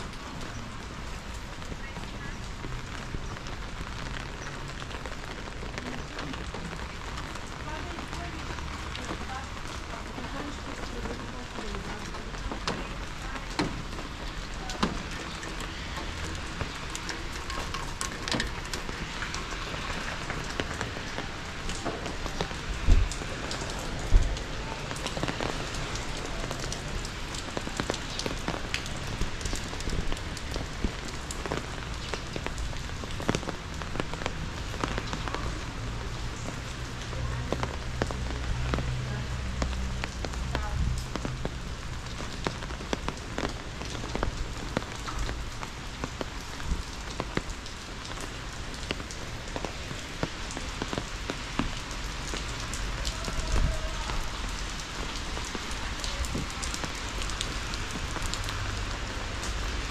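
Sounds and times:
rain drops ticking: 0.0s - 59.9s.

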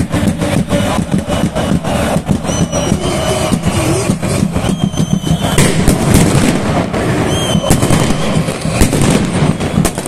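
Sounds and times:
firecrackers banging: 0.0s - 10.0s
loud crowd din: 0.0s - 10.0s
short high whistles: 2.4s - 5.6s, 7.2s - 8.3s.

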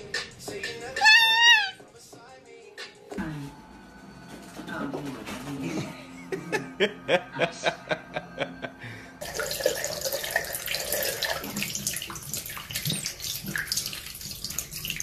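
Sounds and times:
tap water running into sink: 9.2s - 15.0s.

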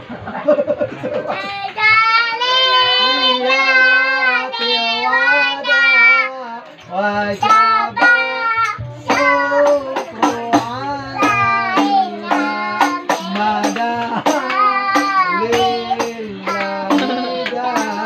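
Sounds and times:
child singing: 1.3s - 6.5s, 7.2s - 18.0s.

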